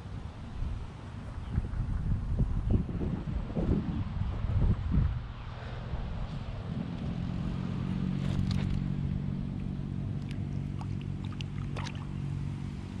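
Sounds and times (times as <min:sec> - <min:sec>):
low motor hum: 0:00.0 - 0:13.0
small water sounds: 0:09.5 - 0:13.0.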